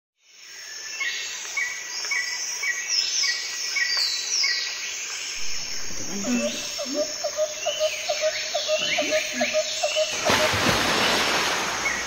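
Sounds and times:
insects chirping: 0.2s - 12.0s
birds chirping: 5.3s - 12.0s.

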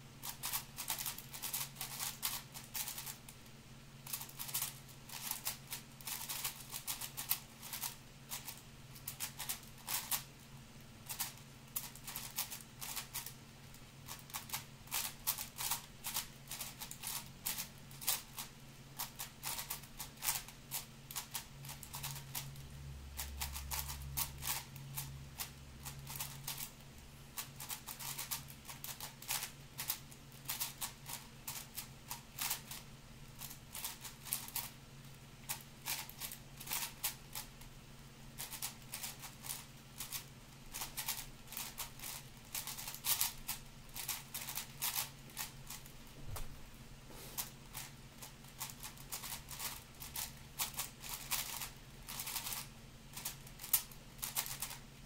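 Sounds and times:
plastic puzzle cube clicking: 0.2s - 3.2s, 38.4s - 43.4s, 48.6s - 52.6s, 53.2s - 54.8s.

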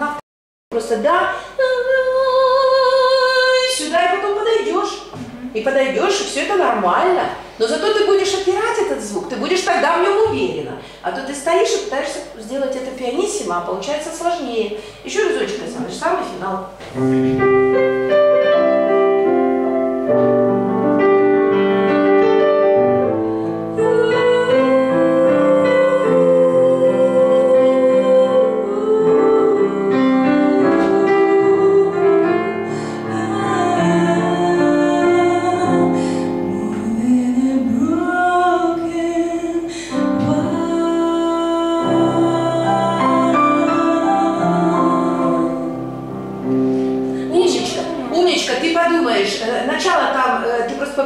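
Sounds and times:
woman singing a ballad: 0.8s - 5.6s, 23.7s - 45.9s
digital piano: 15.5s - 50.8s.

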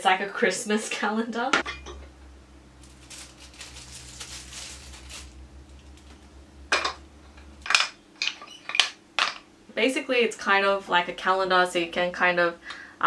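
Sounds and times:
wooden blocks clacking together: 7.6s - 9.4s.

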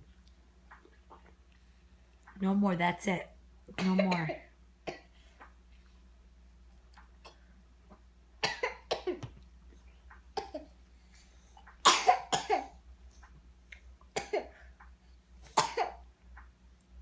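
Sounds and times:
child coughing: 3.8s - 5.1s, 8.4s - 9.3s, 11.9s - 12.8s, 14.2s - 14.6s, 15.6s - 16.0s.

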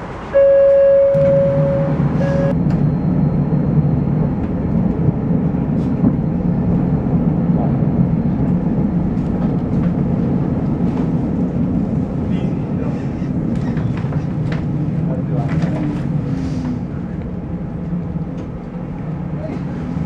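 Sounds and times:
tram door beep: 0.0s - 4.7s
tram motors and wheels rumbling: 0.0s - 20.0s.

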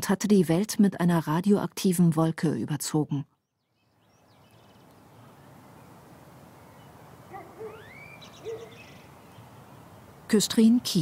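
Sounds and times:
outdoor ambient hiss: 0.0s - 11.0s
bird rising chirp: 3.4s - 5.6s, 6.6s - 9.9s
bird hooting calls: 6.8s - 9.4s.

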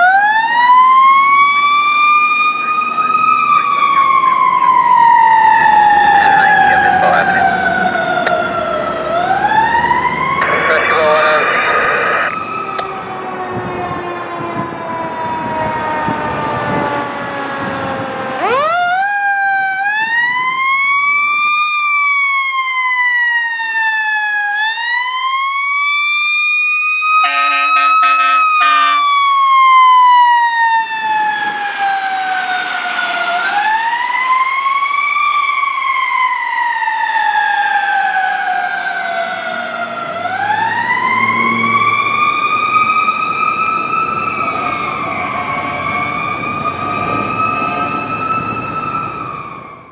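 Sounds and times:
mechanical siren wailing: 0.0s - 49.9s
short horn blasts: 27.2s - 29.1s.

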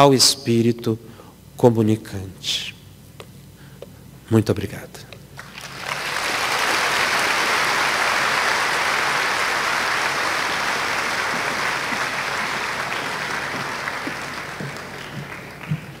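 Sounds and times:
audience applauding: 5.4s - 16.0s.

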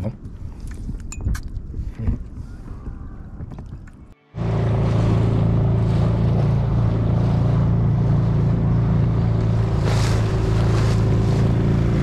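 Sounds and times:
outboard motor running: 4.3s - 12.0s
wind and water hiss: 4.4s - 12.0s.

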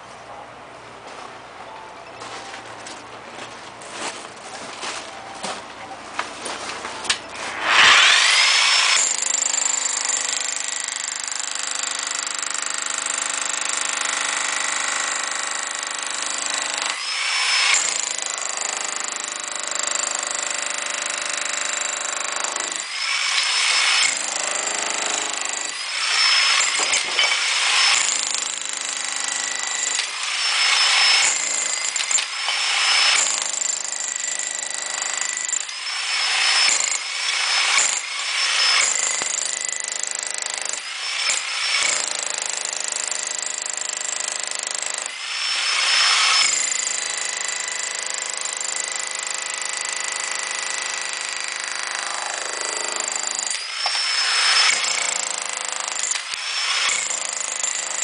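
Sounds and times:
demolition hammer into brick: 20.0s - 58.0s.

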